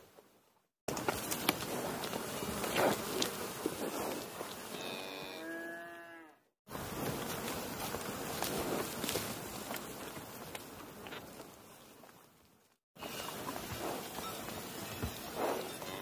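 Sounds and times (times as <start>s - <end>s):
cow mooing: 4.7s - 6.5s.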